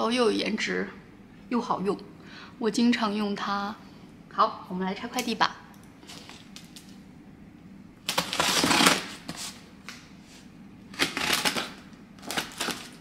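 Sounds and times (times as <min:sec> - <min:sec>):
scissors cutting packing tape: 0:08.0 - 0:09.6, 0:10.9 - 0:13.0.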